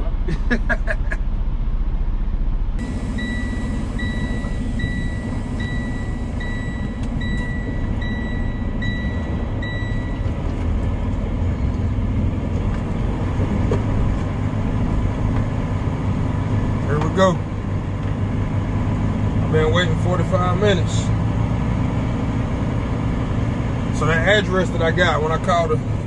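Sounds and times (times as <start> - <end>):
diesel truck engine rumble: 0.0 - 26.0
electronic warning beeps: 2.8 - 10.4.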